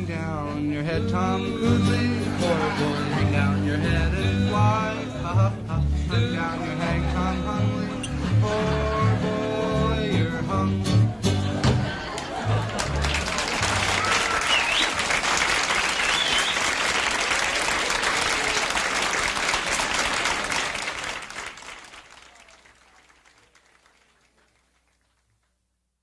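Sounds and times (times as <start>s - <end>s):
audience applauding: 11.6s - 25.4s.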